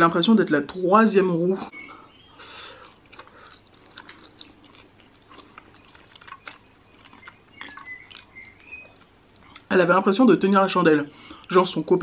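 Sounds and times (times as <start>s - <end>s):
wet chewing of noodles: 1.8s - 9.7s
mouth clicks and smacks: 2.4s - 9.7s.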